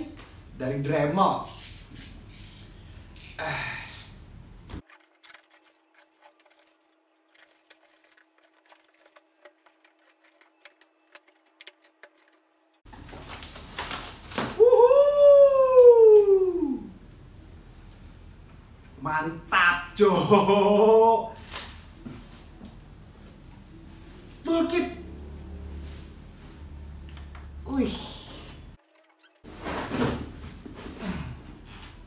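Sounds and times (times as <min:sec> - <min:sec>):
plastic wrap and cardboard rustling: 0:04.8 - 0:14.7
person exclaiming woooo: 0:14.6 - 0:16.9.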